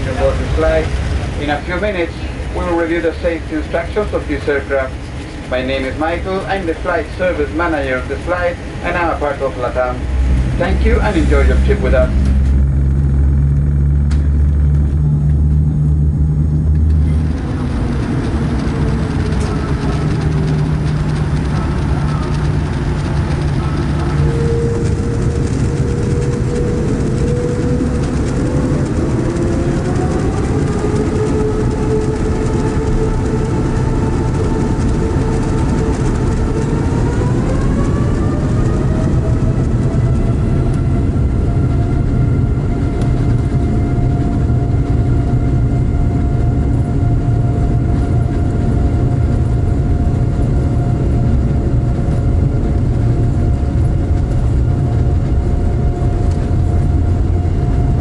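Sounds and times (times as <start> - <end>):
jet engine whine rising: 0.0 - 58.0
loud low rumble: 0.0 - 58.0.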